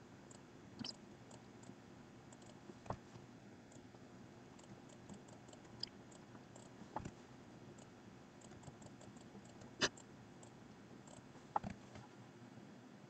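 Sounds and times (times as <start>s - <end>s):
computer mouse and keyboard clicks: 4.6s - 7.2s, 11.1s - 12.1s.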